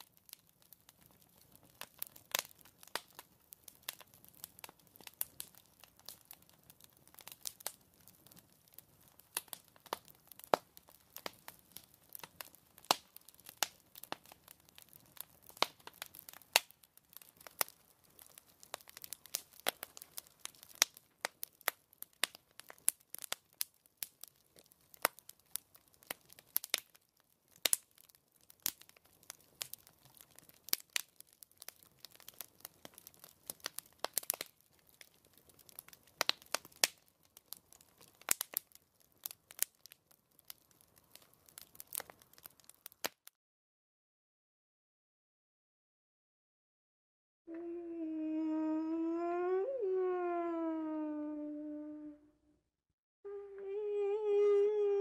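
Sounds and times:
fire crackling: 0.0 - 43.3.

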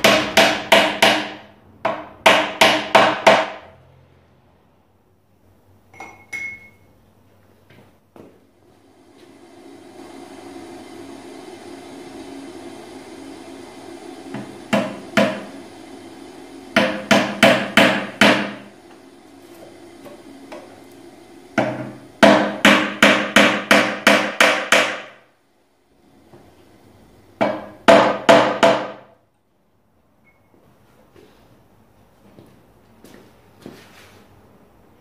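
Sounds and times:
hammer tapping wooden wedges: 16.8 - 18.6, 21.6 - 25.2.

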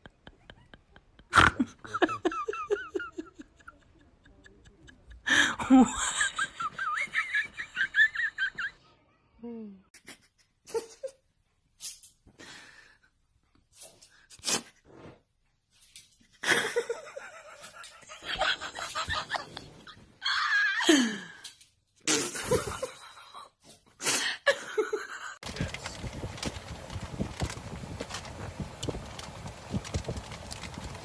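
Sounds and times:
person laughing: 0.0 - 8.8, 16.4 - 21.3, 22.1 - 23.5.

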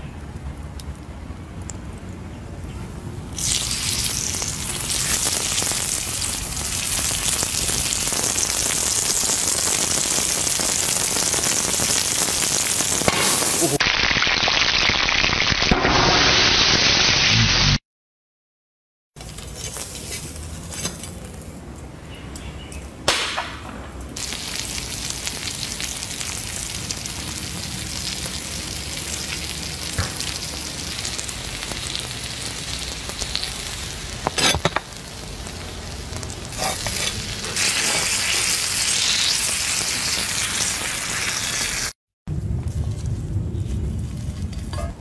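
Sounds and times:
steak sizzling in pan: 3.4 - 17.5, 24.2 - 42.0.

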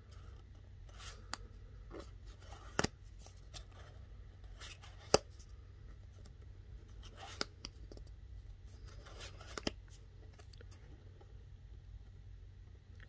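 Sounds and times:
cards sliding against each other: 0.1 - 5.5, 6.9 - 8.0, 8.7 - 10.4.

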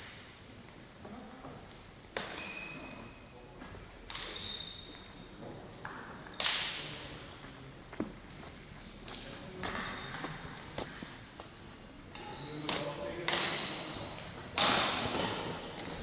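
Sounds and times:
rackets hitting shuttlecock: 2.1 - 2.8, 4.1 - 4.6, 12.1 - 13.6, 14.5 - 16.0
shoes squeaking on court floor: 2.2 - 6.6, 8.0 - 11.2, 12.1 - 16.0.

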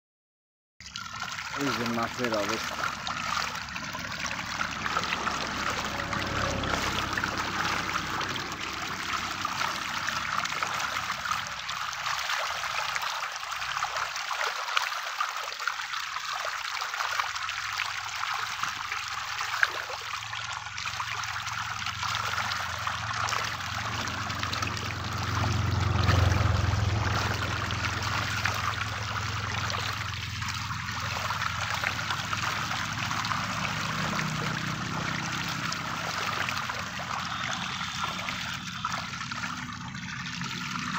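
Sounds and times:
fish splashing at water surface: 0.8 - 40.9
low hum: 2.6 - 11.8, 20.2 - 40.9.

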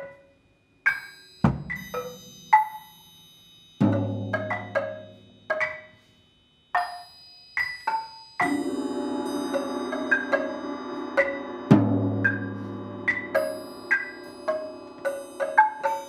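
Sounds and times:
mallet strokes on keyboard percussion: 3.8 - 6.1, 6.8 - 16.0
deep low percussion stroke: 8.4 - 16.0
low rolling percussion texture: 8.4 - 16.0.

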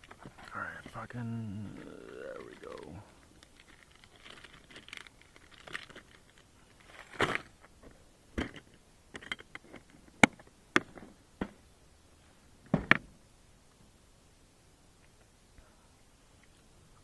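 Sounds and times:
plastic packet crinkling: 1.6 - 7.2.

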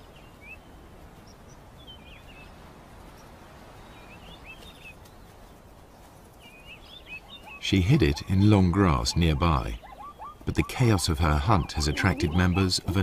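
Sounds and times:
outdoor ambience hiss: 0.0 - 13.0
small birds chirping: 0.0 - 13.0.

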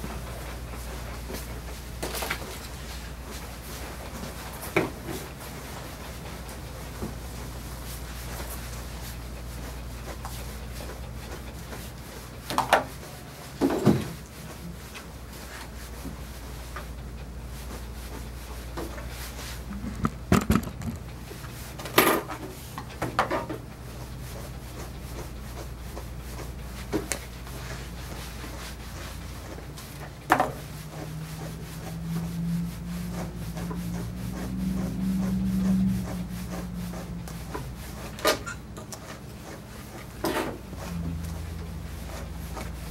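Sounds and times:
brush rubbing through dog fur: 0.1 - 21.8, 24.0 - 42.9
steady low hum: 13.1 - 22.4, 30.8 - 40.0
sharp clicks and knocks: 19.7 - 21.2.

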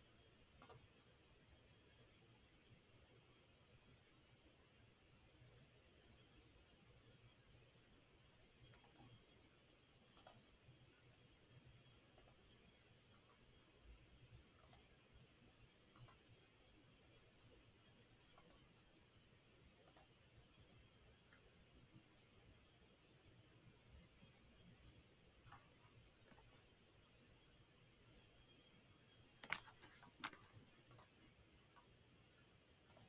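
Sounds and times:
faint room hiss: 0.0 - 33.0
computer mouse button clicking: 0.6 - 0.8, 10.1 - 10.4, 14.6 - 14.8, 16.0 - 16.2, 29.4 - 31.1.

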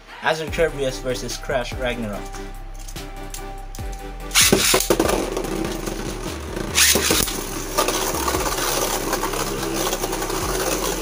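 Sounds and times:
spinning tops clashing: 2.2 - 11.0
spinning top launch rip: 4.3 - 11.0
spinning tops whirring and scraping: 4.3 - 11.0.

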